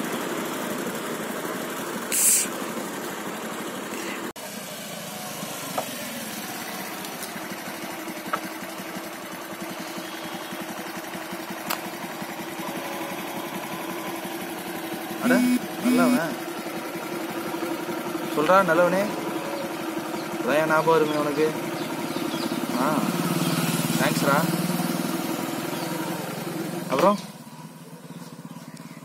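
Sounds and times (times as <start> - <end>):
scooter engine running: 0.0 - 29.0
loud burst of hiss: 2.1 - 2.6.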